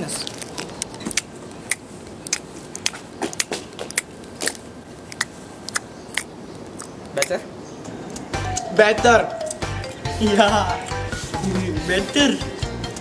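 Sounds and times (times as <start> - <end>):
wrapper crackling: 0.0 - 2.9
biting into candy bar: 0.3 - 7.4.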